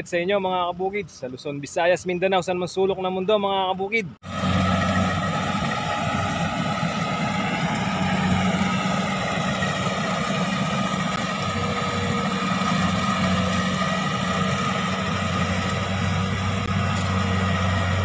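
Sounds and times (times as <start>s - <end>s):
diesel engine drone: 4.2s - 18.0s.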